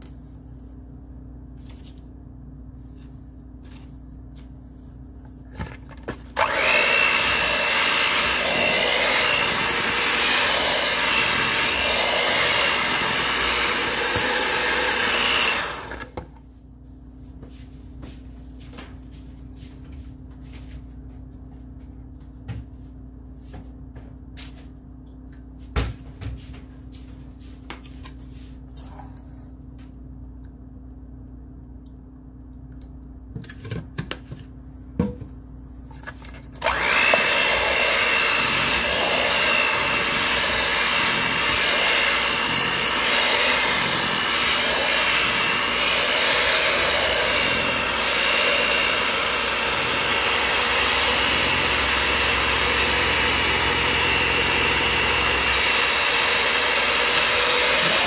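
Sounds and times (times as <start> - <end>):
electric mixer whining: 6.4 - 16.3, 36.6 - 58.0
low steady hum: 16.2 - 36.6.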